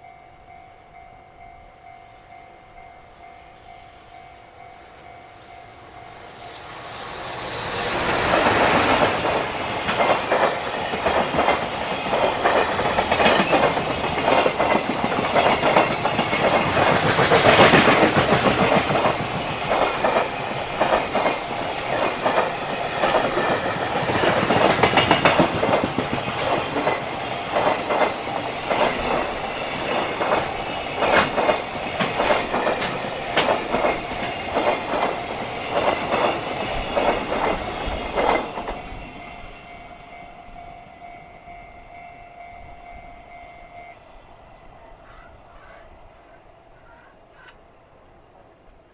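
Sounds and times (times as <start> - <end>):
level crossing alarm bell: 0.0 - 6.6, 38.9 - 44.2
train passing at speed: 0.0 - 48.9
wheels clattering over rail joints: 8.0 - 38.9.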